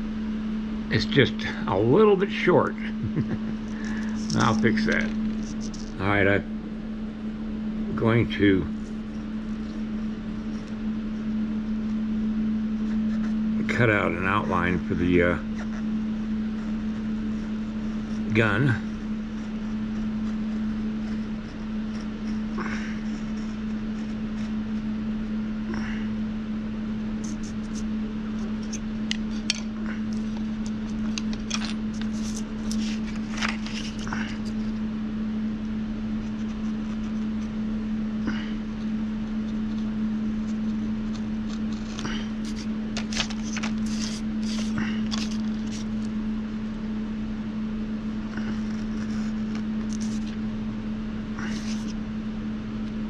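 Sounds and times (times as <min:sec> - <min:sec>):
steady low hum: 0:00.0 - 0:53.0
craft knife cutting paper: 0:03.8 - 0:06.0, 0:27.2 - 0:34.8, 0:40.4 - 0:46.0, 0:48.4 - 0:50.4, 0:51.4 - 0:52.0.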